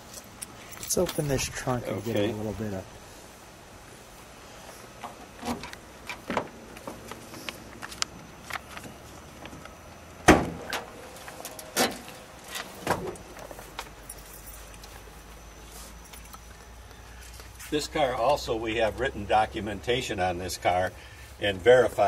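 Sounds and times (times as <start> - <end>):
trunk lid clunk: 10.2 - 10.9.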